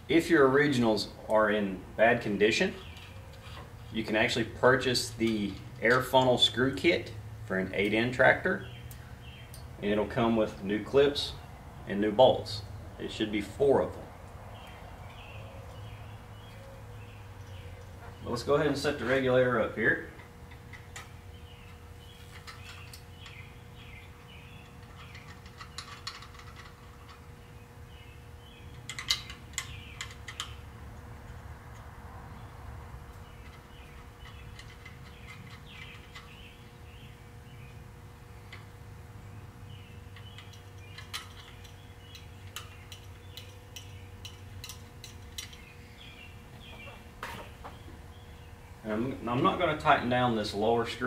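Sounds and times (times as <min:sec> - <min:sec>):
steady low hum: 0:00.0 - 0:51.0
small metallic screw clicks: 0:40.2 - 0:45.7.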